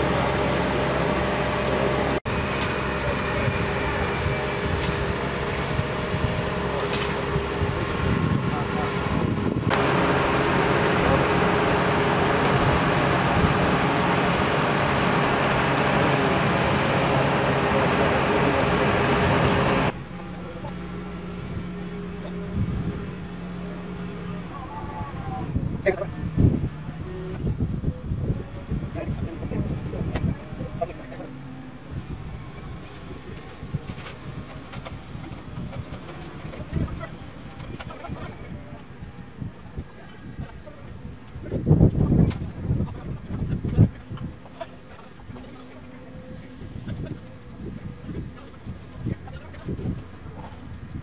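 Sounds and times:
crane diesel engine running: 0:00.0 - 0:51.0
wind buffeting microphone: 0:03.3 - 0:11.6, 0:24.4 - 0:31.2, 0:31.8 - 0:51.0.

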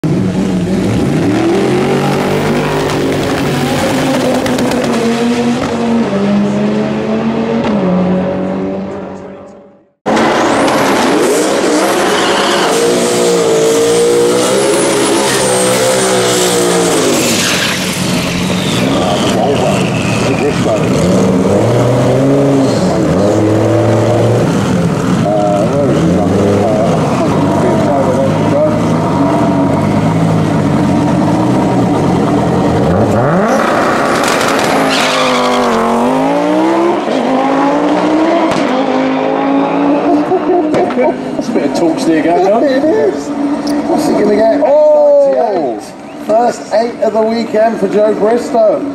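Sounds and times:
car engine revving high: 0:00.0 - 0:41.4
tyre squeal: 0:10.4 - 0:21.6, 0:34.6 - 0:36.0.

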